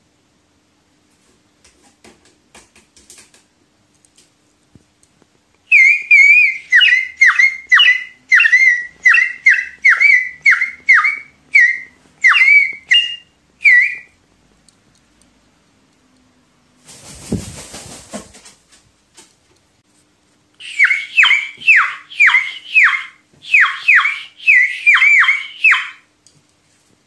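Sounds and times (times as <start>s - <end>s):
water whistle warbling toots: 5.7s - 14.2s, 20.6s - 26.0s.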